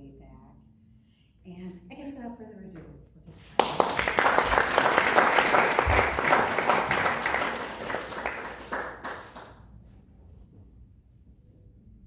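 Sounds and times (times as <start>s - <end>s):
audience applauding: 3.6s - 9.7s.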